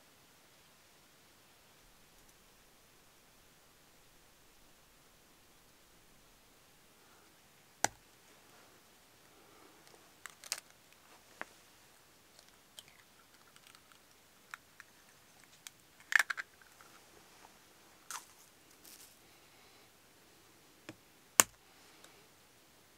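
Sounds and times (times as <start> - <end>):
bamboo clicks and knocks: 20.9 - 21.6.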